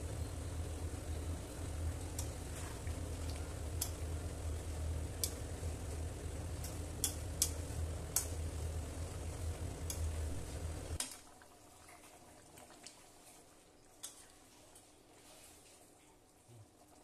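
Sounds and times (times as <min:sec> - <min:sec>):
low hum: 0:00.0 - 0:11.0
sizzling: 0:00.0 - 0:15.9
faint bubbling simmer: 0:00.0 - 0:17.0.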